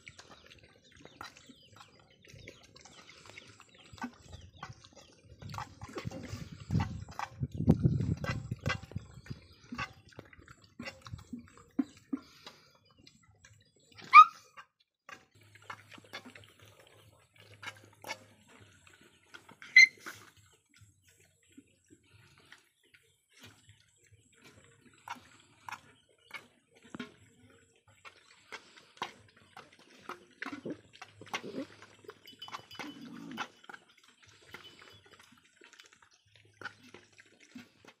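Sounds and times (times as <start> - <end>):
puppies lapping and chewing: 0.0 - 38.0
puppy yelp: 14.0 - 14.6, 19.7 - 20.0
dogs grunting: 30.7 - 31.8.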